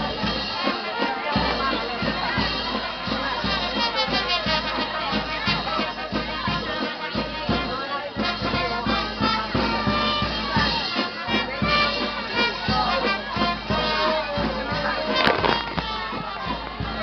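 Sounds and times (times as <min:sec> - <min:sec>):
steady drumbeat: 0:00.0 - 0:17.0
brass horns playing a tune: 0:03.6 - 0:16.3.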